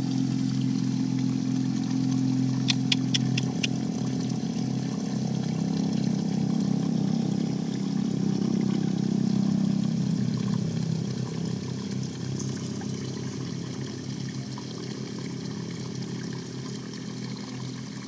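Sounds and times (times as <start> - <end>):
low motor hum: 0.0 - 18.0
water running and trickling: 0.0 - 18.0
sharp clicks: 2.7 - 3.7.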